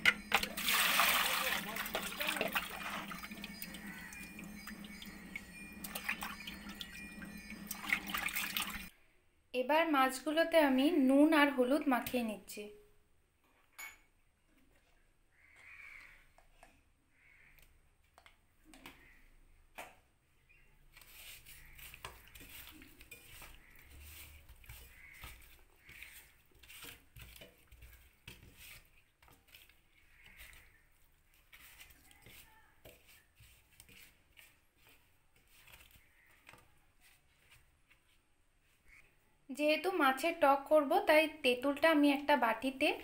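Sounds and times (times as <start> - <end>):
wet rubbing of fish in bowl: 0.2 - 8.9, 20.9 - 38.2
water splashing and dripping: 0.3 - 8.9.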